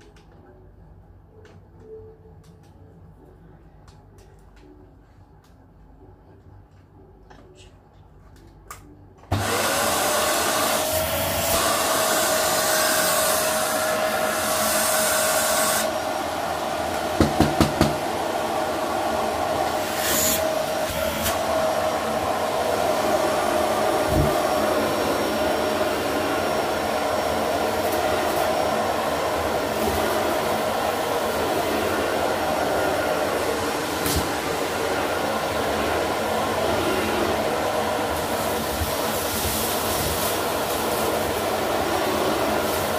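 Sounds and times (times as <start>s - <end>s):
vacuum cleaner whining: 9.2s - 42.9s
vacuum pulling debris off carpet: 9.3s - 16.0s, 18.7s - 42.9s.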